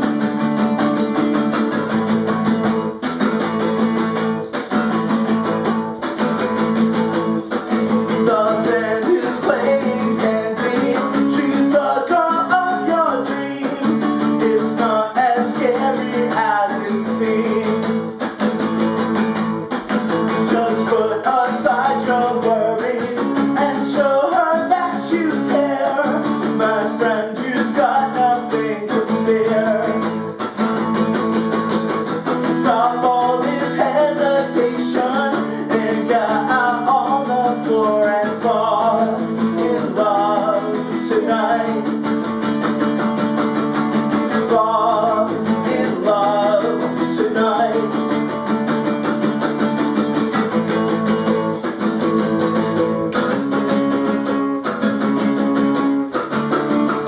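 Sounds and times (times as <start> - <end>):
strummed acoustic guitar: 0.0 - 57.0
man singing: 7.3 - 18.6, 20.2 - 30.6, 32.2 - 48.6.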